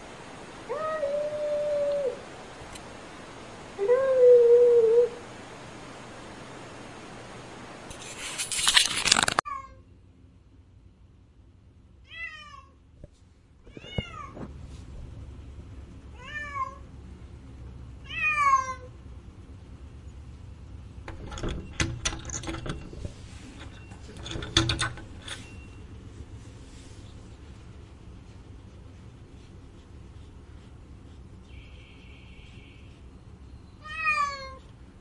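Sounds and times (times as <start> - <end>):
cat meowing: 12.1 - 12.8, 16.1 - 16.8, 18.0 - 18.9, 33.8 - 34.7
sharp clicks and knocks: 21.0 - 25.5.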